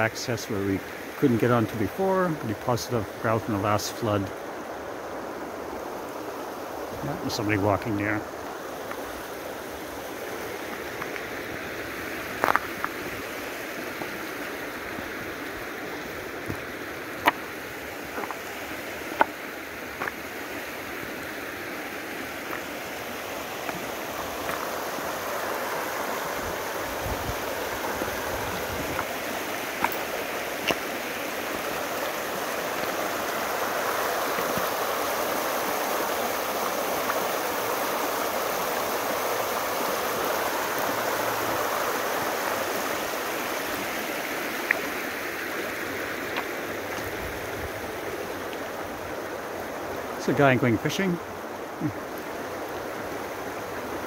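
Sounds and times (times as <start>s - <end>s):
river water rushing over stones: 0.0s - 54.0s
stones knocking underfoot: 12.3s - 13.0s, 16.4s - 17.5s, 18.1s - 18.4s, 19.1s - 19.4s, 20.0s - 20.2s, 22.4s - 22.7s, 24.4s - 24.7s, 28.8s - 30.9s.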